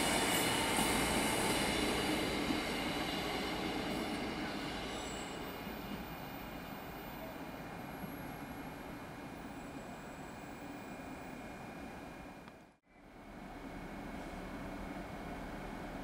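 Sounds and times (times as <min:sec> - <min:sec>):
railcar wheels rumbling and squealing: 0:00.0 - 0:12.3.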